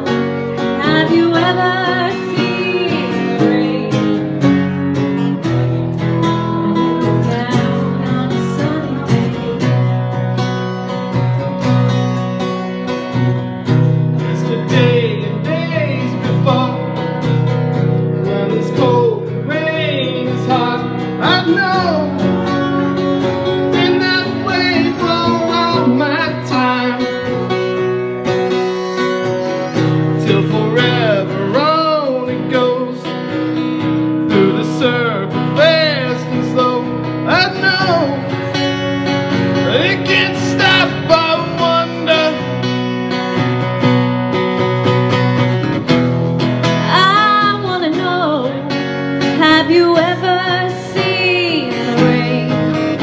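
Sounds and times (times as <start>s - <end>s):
strummed acoustic guitar: 0.0s - 53.0s
woman singing: 0.6s - 4.5s, 6.4s - 9.8s, 46.8s - 53.0s.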